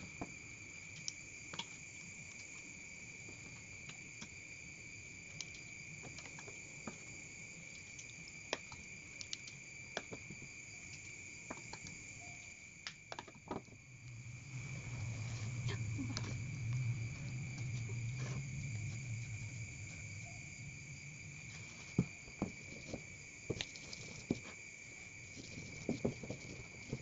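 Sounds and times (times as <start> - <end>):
crickets chirring: 0.0 - 27.0
low hum: 13.8 - 22.3.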